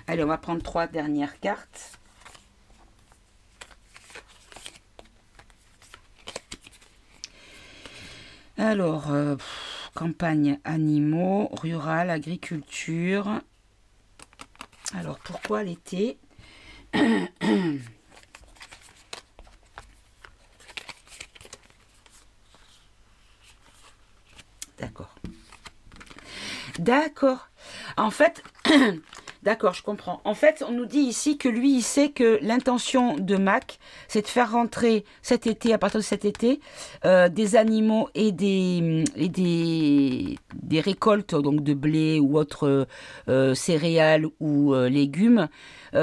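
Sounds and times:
cards ticking and rustling: 3.5 - 7.2, 14.2 - 15.6, 18.0 - 22.6, 25.3 - 26.3, 28.4 - 29.4.

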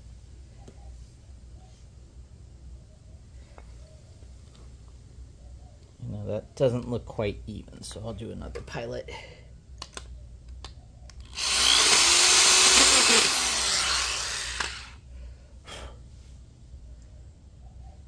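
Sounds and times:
electric drill boring into wood: 11.3 - 15.0.

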